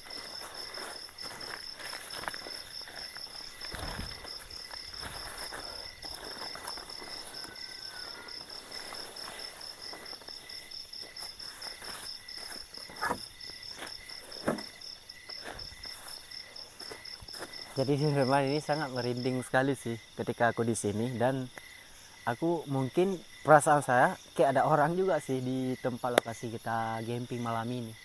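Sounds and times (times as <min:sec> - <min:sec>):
groundsheet rustling on leaves: 0:00.0 - 0:14.5
crickets trilling: 0:00.0 - 0:28.0
sharp thuds: 0:14.4 - 0:14.8.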